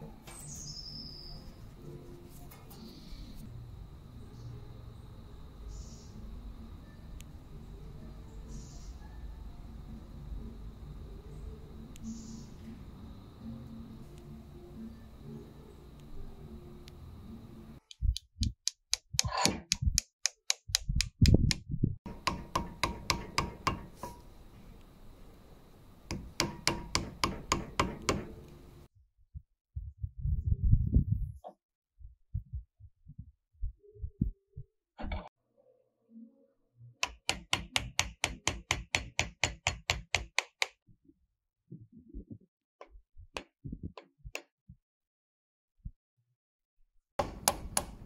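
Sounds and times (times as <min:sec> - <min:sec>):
quick sharp taps and clicks: 0:17.9 - 0:21.6
tapping on a screwdriver: 0:17.9 - 0:24.2, 0:26.1 - 0:28.4, 0:37.0 - 0:40.8.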